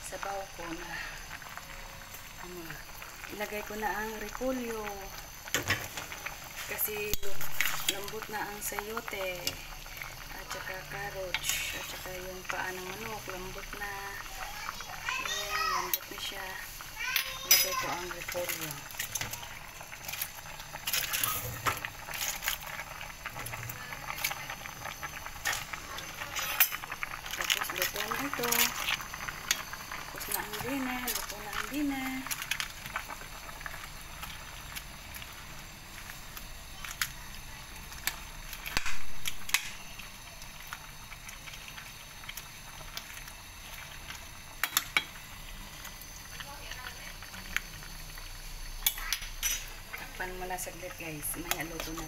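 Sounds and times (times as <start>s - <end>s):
pot bubbling: 0.0s - 52.0s.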